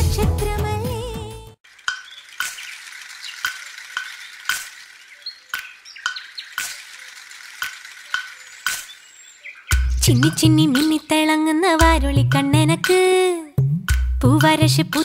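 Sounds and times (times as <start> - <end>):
sharp rhythmic clicks: 1.6 - 15.0.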